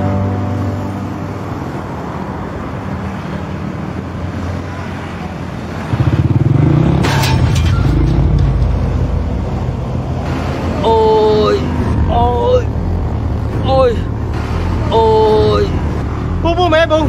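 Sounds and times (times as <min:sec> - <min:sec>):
motorbike engine revving: 0:05.7 - 0:08.9.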